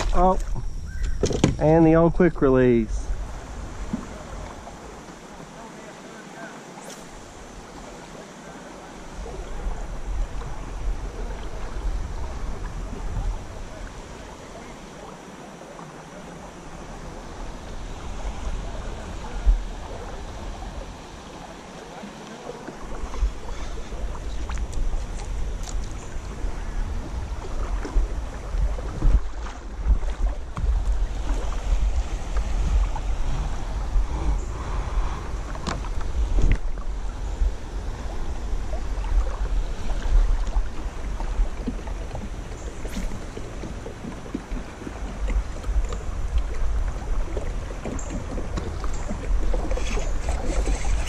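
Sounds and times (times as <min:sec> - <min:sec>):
faint ticks and splashes: 0:00.0 - 0:34.6, 0:35.3 - 0:51.0
stream water rushing: 0:01.6 - 0:51.0
wind buffeting microphone: 0:09.1 - 0:14.7, 0:22.8 - 0:51.0.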